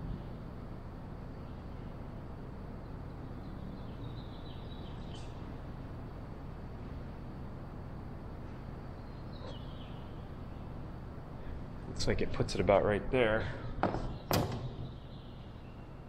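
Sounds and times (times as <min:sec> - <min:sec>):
faint high chirps: 0:08.4 - 0:10.8.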